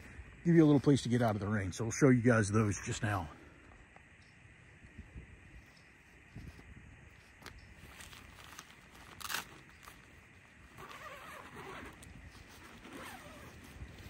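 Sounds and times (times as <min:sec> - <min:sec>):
wind rumble on microphone: 0:04.4 - 0:08.9, 0:10.3 - 0:14.0
fabric rustling: 0:07.2 - 0:14.0
tent zipper rasping open: 0:08.0 - 0:14.0.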